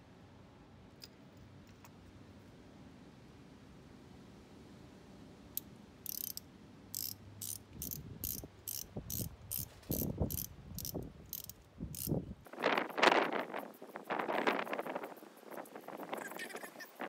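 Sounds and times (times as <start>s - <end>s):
ratchet wrench clicking: 5.6s - 12.2s.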